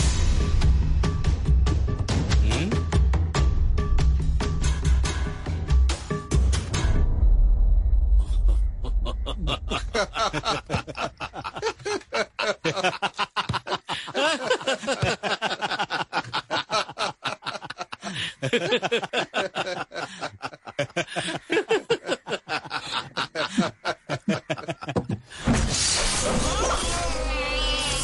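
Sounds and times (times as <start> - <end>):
low drum-heavy music hit: 0.0 - 8.2
men laughing: 8.2 - 25.5.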